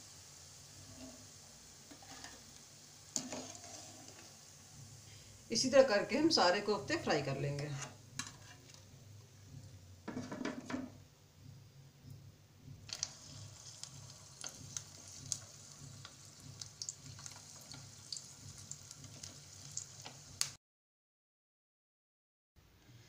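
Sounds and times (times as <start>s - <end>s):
food frying in hot oil: 0.0s - 6.5s, 12.9s - 20.6s
sizzling crackles: 0.0s - 9.7s, 12.8s - 20.6s.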